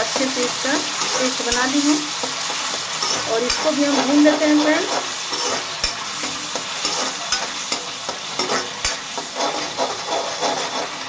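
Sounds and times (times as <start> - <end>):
masala sizzling in hot oil: 0.0 - 11.0
spatula stirring and scraping: 0.0 - 11.0
spatula clinking against pan: 5.4 - 9.0.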